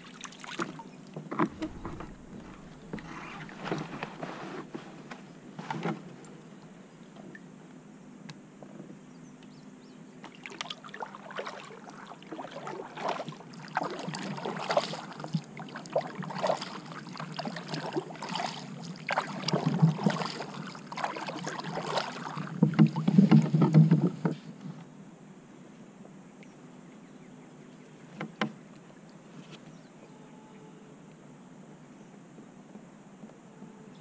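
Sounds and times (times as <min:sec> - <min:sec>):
kayak paddle splashing: 0:00.0 - 0:04.9, 0:10.3 - 0:24.4
bumping and rustling: 0:01.2 - 0:06.1.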